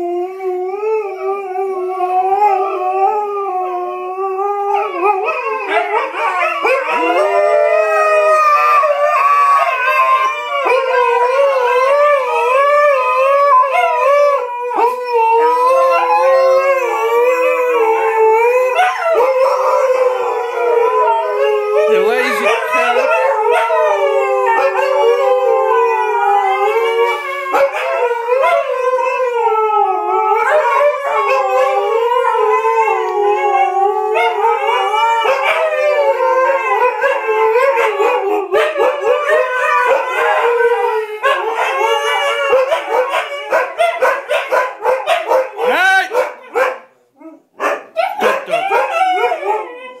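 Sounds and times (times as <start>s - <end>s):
huskies howling: 0.0s - 50.0s.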